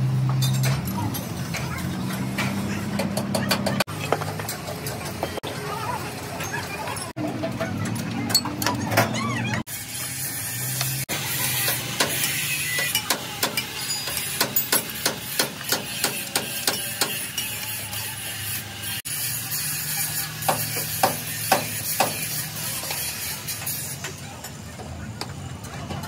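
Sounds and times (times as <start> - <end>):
hammer striking metal: 11.6 - 17.6, 20.4 - 22.4.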